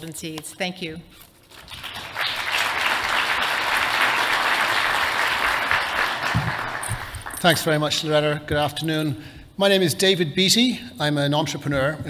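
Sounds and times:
audience applause: 0:01.6 - 0:07.5.

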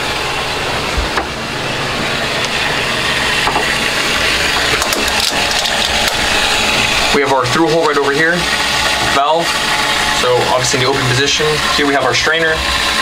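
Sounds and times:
boat machinery hum and hiss: 0:00.0 - 0:13.0.

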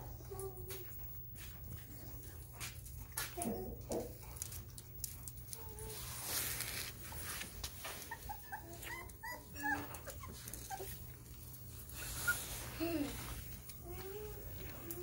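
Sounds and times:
puppies whimpering: 0:07.8 - 0:12.8.

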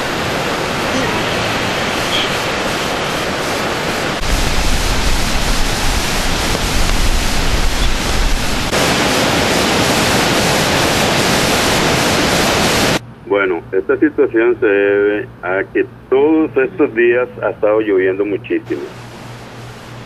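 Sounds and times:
river torrent roaring: 0:00.0 - 0:13.0.

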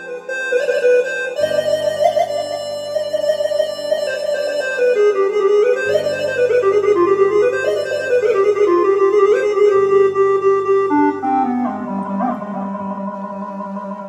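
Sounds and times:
electronic keyboard melody: 0:00.0 - 0:14.0
sustained bass notes: 0:05.2 - 0:14.0.

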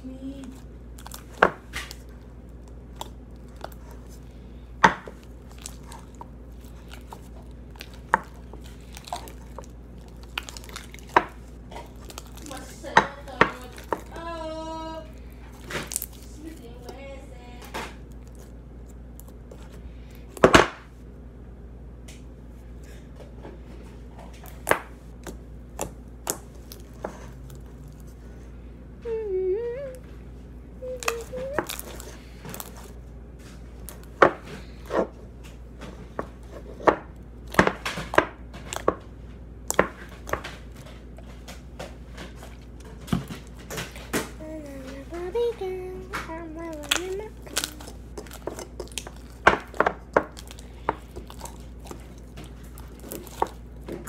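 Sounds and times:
slime squished by hand: 0:00.2 - 0:17.0, 0:30.8 - 0:35.1, 0:46.1 - 0:54.0
child humming: 0:29.0 - 0:30.1, 0:30.8 - 0:32.0, 0:44.4 - 0:47.9.

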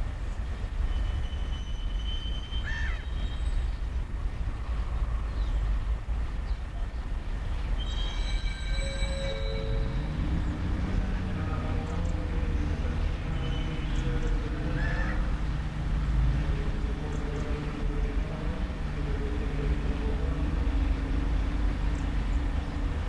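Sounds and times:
freight train rumbling: 0:00.0 - 0:23.0
train wheels squealing: 0:00.9 - 0:03.7, 0:07.7 - 0:10.4.

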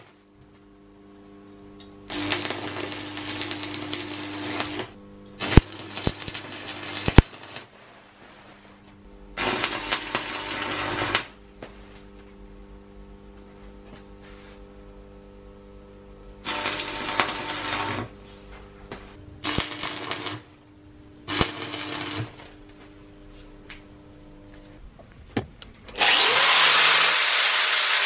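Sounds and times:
welder electrical hum: 0:00.0 - 0:28.0
welding arc crackling: 0:02.1 - 0:07.8, 0:09.4 - 0:11.4, 0:16.4 - 0:18.3, 0:18.9 - 0:20.6, 0:21.2 - 0:23.3, 0:26.0 - 0:28.0.

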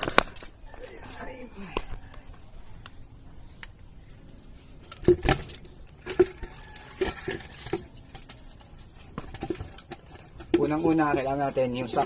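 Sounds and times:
metal can clunking: 0:04.9 - 0:12.0.

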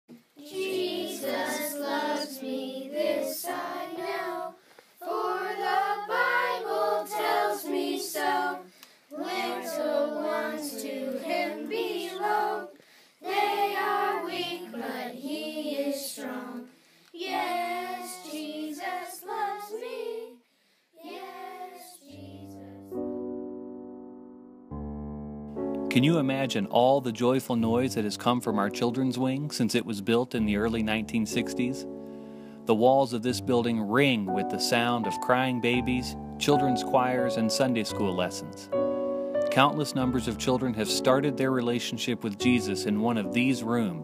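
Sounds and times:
children's choir singing: 0:00.4 - 0:20.4, 0:21.0 - 0:22.8
piano playing: 0:22.6 - 0:44.0.

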